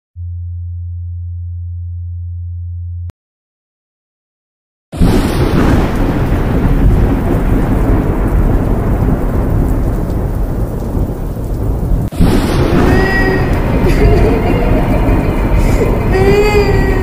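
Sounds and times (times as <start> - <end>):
heavy rain: 5.0 - 17.0
thunder rumbling: 5.0 - 17.0.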